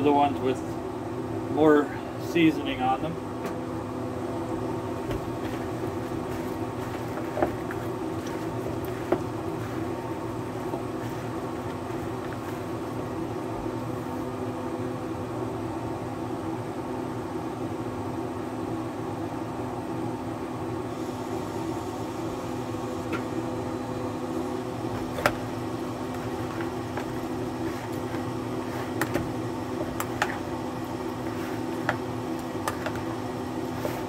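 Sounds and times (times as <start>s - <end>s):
mechanical motor hum: 0.0s - 34.0s
chicken wings tossed in plastic bowl: 5.1s - 12.8s, 26.0s - 34.0s.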